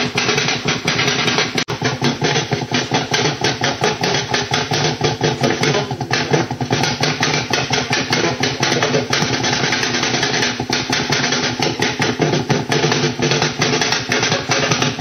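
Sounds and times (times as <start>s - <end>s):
rapid radio pops: 0.0s - 15.0s
radio hiss and hum: 5.2s - 9.3s.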